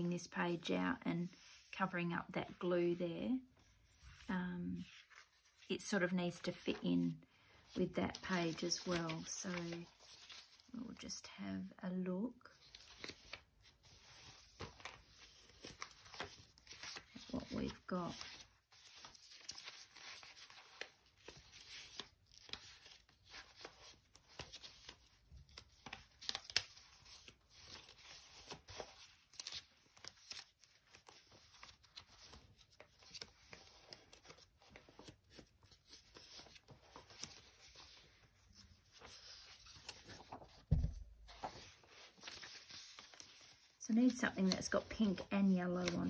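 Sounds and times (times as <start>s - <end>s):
paper rustling and flicking: 8.1s - 10.6s, 12.7s - 46.0s
soft thump: 40.7s - 41.0s.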